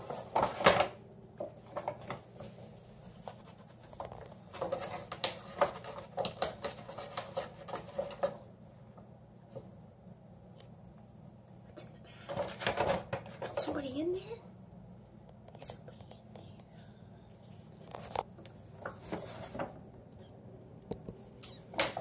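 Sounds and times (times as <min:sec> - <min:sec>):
paper bag rustling: 0:00.0 - 0:08.4, 0:17.7 - 0:19.9.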